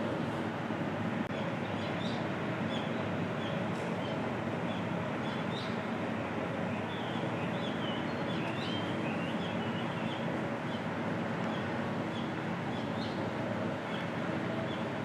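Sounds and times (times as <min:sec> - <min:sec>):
steady background noise: 0:00.0 - 0:15.0
small birds chirping: 0:06.9 - 0:10.9.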